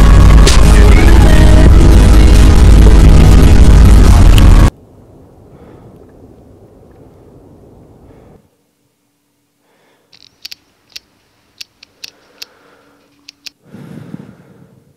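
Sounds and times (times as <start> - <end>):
faint steady hum: 0.0 - 14.9
wind and water noise: 4.7 - 8.5.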